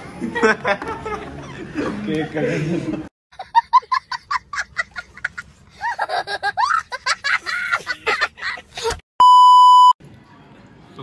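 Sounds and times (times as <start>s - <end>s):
boy laughing: 0.3s - 9.0s.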